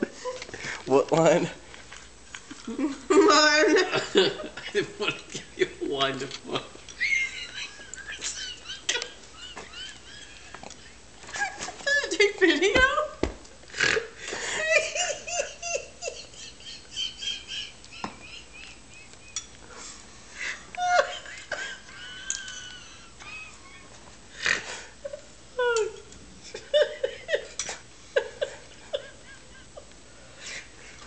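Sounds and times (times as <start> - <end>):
man laughing helplessly: 7.0 - 12.1, 14.3 - 19.4, 20.4 - 24.0, 26.5 - 29.9.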